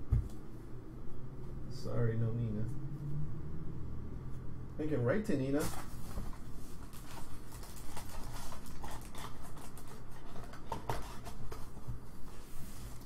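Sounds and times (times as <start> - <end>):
soft rustle: 12.1 - 13.0.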